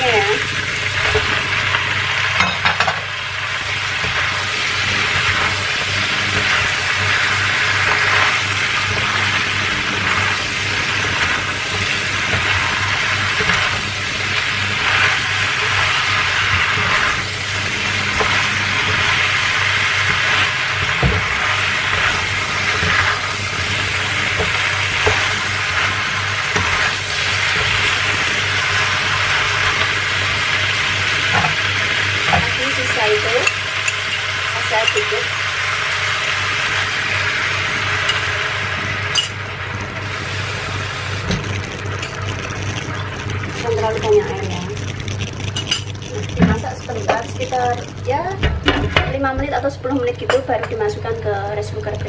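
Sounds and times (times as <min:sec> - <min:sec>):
food sizzling in a wok: 0:00.0 - 0:52.0
spatula stirring: 0:03.6 - 0:35.4, 0:36.3 - 0:49.0
water pouring: 0:36.5 - 0:48.9.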